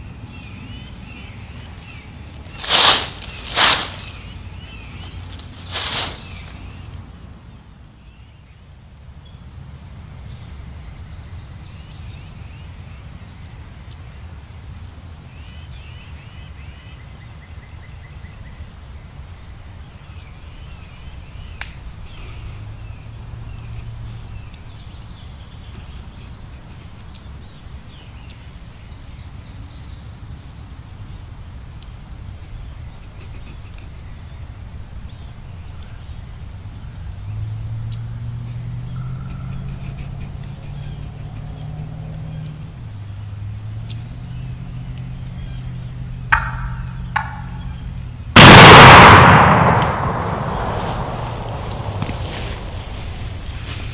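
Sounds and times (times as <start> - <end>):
songbirds chirping and trilling: 0.0 - 48.8
steady low rumble: 44.8 - 53.9.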